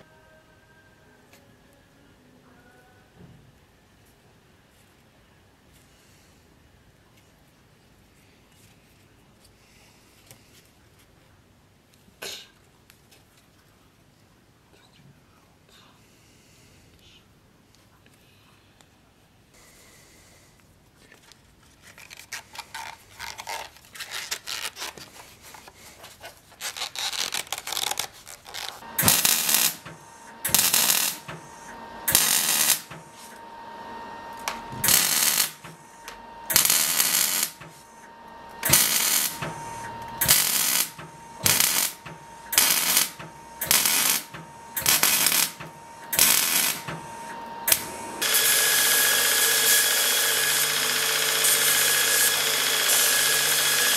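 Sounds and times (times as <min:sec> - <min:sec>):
arc welding crackling: 0:26.6 - 0:53.9.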